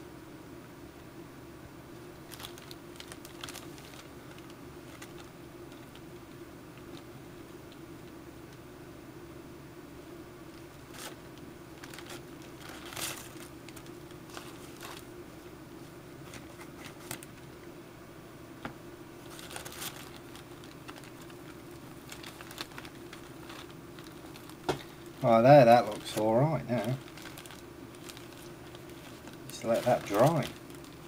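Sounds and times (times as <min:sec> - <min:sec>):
steady low hum: 0:00.0 - 0:31.0
plastic bag crinkling: 0:02.2 - 0:07.0, 0:10.5 - 0:11.2, 0:11.8 - 0:15.1, 0:16.2 - 0:17.4, 0:19.2 - 0:31.0.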